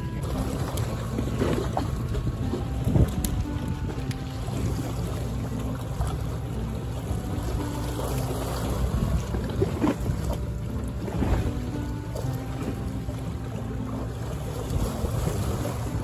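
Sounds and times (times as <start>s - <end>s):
wind buffeting microphone: 0.0s - 5.5s, 6.4s - 13.6s.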